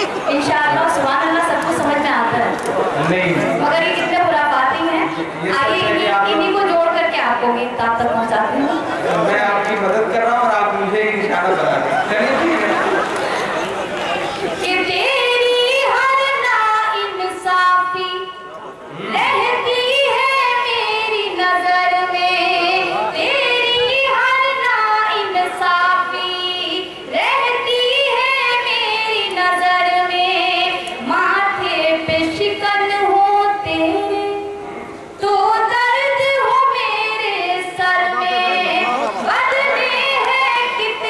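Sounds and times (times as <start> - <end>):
woman singing: 14.6 - 18.3, 19.1 - 34.6, 35.2 - 41.0.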